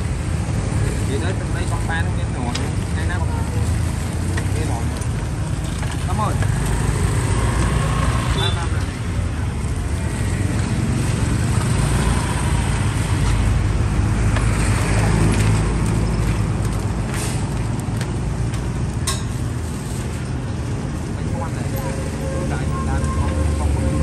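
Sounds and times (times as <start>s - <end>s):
outdoor market background noise: 0.0s - 24.0s
street traffic rumble: 0.0s - 24.0s.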